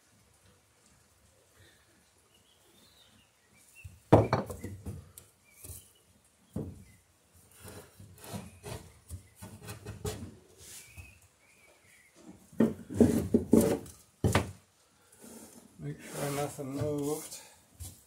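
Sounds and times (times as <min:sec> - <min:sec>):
wood knocking against wood: 0:04.1 - 0:05.0, 0:12.6 - 0:14.6.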